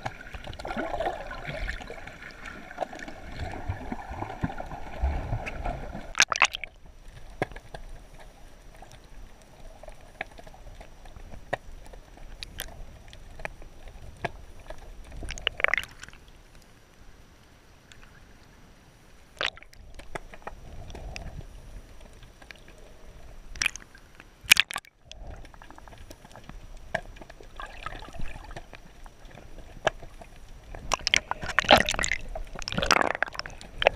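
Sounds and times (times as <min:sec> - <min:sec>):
water sloshing: 0:00.0 - 0:06.8, 0:19.4 - 0:21.1, 0:24.5 - 0:33.9
underwater wash of water: 0:00.0 - 0:10.9, 0:19.3 - 0:22.0, 0:23.5 - 0:33.9
sharp underwater clicks: 0:06.1 - 0:09.0, 0:10.2 - 0:16.7, 0:19.4 - 0:21.3, 0:23.5 - 0:28.9, 0:30.7 - 0:33.9.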